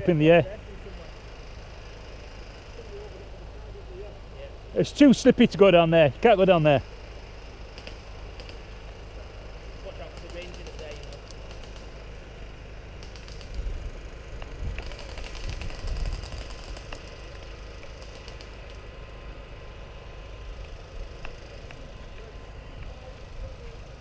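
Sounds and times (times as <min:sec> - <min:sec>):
airsoft guns firing: 0:07.7 - 0:08.8, 0:09.9 - 0:12.1, 0:13.0 - 0:18.8.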